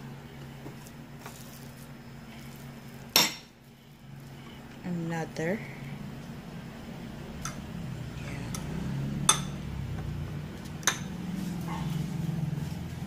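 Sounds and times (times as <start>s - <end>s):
steady low hum: 0.0s - 13.0s
fork tapping ceramic bowls: 8.5s - 9.6s, 10.8s - 11.2s.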